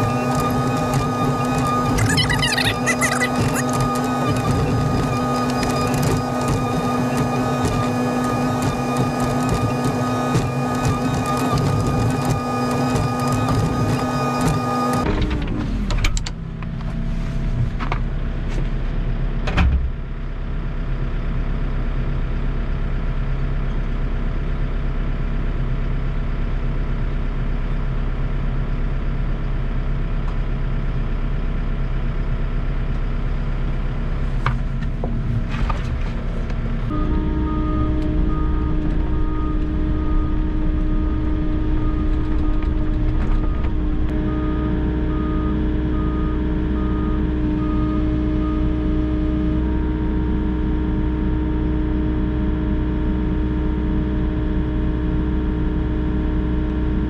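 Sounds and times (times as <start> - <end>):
diesel engine running: 0.0 - 57.0
repeating beep: 1.1 - 7.1, 37.0 - 48.8.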